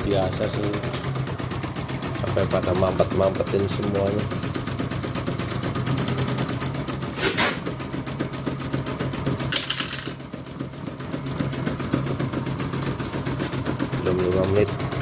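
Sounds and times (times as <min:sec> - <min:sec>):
motor hum: 0:00.0 - 0:15.0
short hisses: 0:07.1 - 0:07.6.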